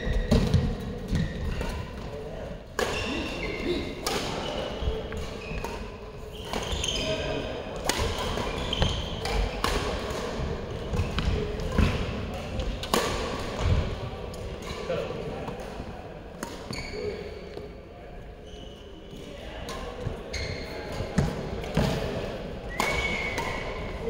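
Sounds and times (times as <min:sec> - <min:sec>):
voices chattering: 0:00.0 - 0:24.0
racket hitting shuttlecock: 0:00.2 - 0:02.1, 0:02.8 - 0:07.0, 0:07.7 - 0:14.8, 0:20.9 - 0:22.1, 0:22.8 - 0:23.9
shoes squeaking on court: 0:04.4 - 0:07.5, 0:08.3 - 0:09.6, 0:16.6 - 0:17.3, 0:20.1 - 0:21.3.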